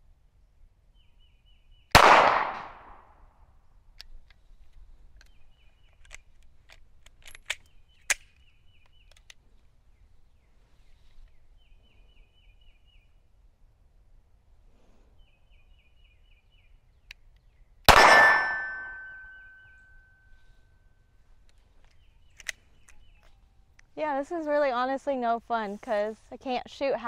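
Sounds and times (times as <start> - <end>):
pistol shot: 1.9 - 3.0, 17.9 - 19.2
metallic clicks of pistol handling: 3.9 - 9.4, 21.4 - 23.9.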